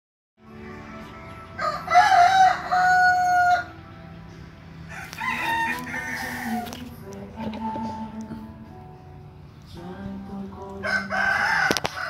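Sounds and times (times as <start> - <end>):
rooster crowing: 1.6 - 3.8, 4.9 - 6.9, 10.8 - 12.0.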